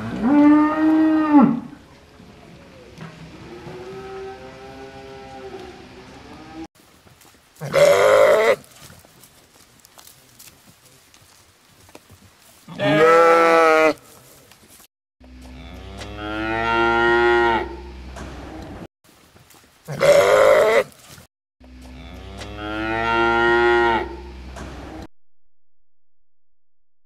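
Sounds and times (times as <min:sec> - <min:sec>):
cow mooing: 0:00.0 - 0:01.8, 0:12.8 - 0:14.0, 0:15.5 - 0:17.9, 0:21.9 - 0:24.3
sheep bleating: 0:07.6 - 0:08.7, 0:12.7 - 0:14.0.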